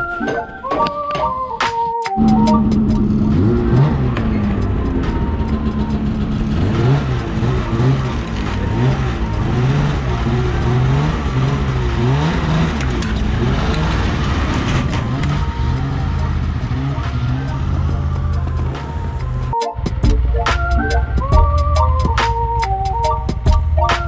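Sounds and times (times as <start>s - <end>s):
snowmobile engine revving: 2.2s - 19.5s.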